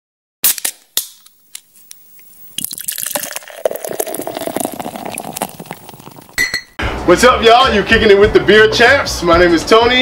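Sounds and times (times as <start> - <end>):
beer pouring into a glass: 2.5 - 6.4.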